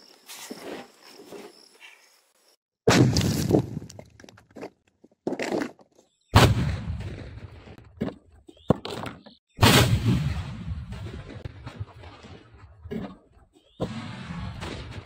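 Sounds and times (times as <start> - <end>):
bottle rocket blasts: 9.6 - 11.4.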